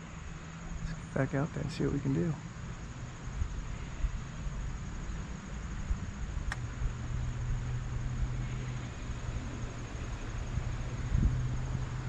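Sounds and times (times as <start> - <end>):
steady outdoor hiss: 0.0 - 12.0
wind rumble on microphone: 3.2 - 12.0
sharp click: 6.5 - 6.7.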